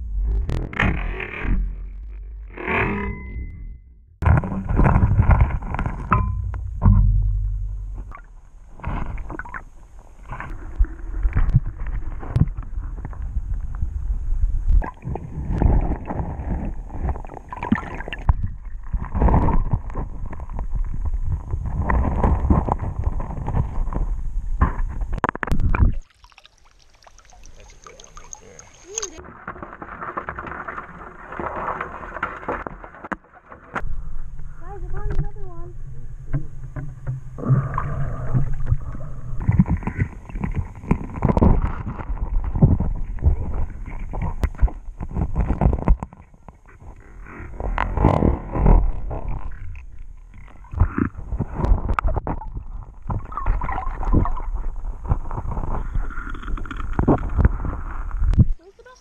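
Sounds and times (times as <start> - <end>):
muffled water rushing underwater: 4.2 - 59.0.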